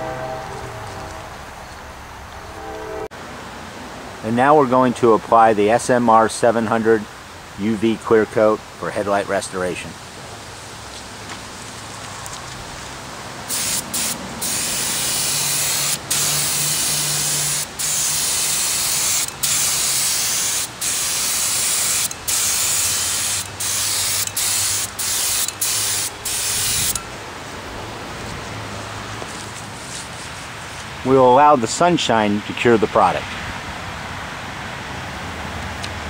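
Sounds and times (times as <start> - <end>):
paint spray gun hissing: 13.5 - 27.1.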